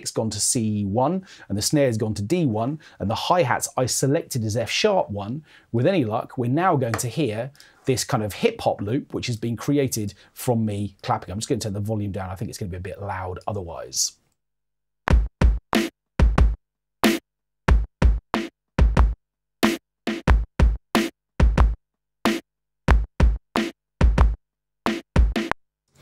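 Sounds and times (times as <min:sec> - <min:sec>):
hip-hop drum loop: 0:22.9 - 0:25.6.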